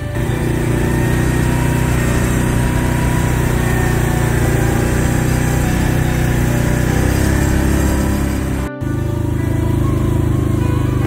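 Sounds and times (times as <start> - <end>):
atv engine running: 0.0 - 11.0.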